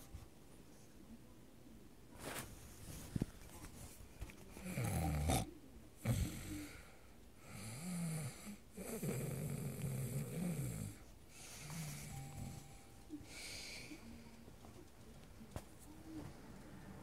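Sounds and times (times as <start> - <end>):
person snoring: 4.6 - 14.0.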